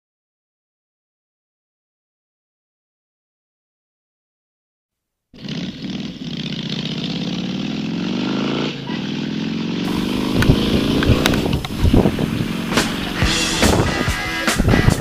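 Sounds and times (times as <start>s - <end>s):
motorcycle engine revving: 5.4s - 15.0s
rock music with drums: 9.9s - 15.0s.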